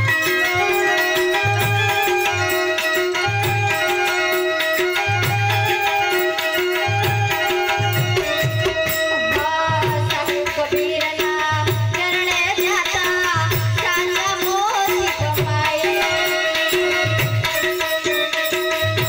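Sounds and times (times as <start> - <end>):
keyboard drum rhythm: 0.0 - 19.0
woman singing into microphone: 6.8 - 18.2.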